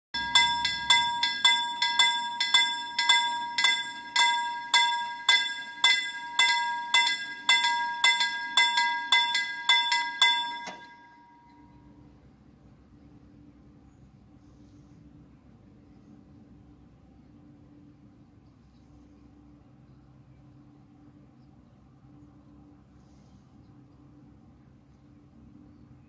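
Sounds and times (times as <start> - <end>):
mechanical crossing bell ringing: 0.2 - 12.0.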